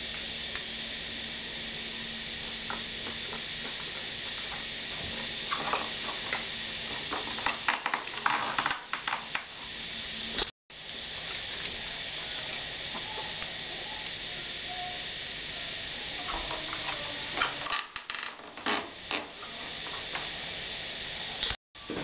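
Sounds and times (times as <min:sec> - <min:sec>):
steady hiss: 0:00.0 - 0:22.0.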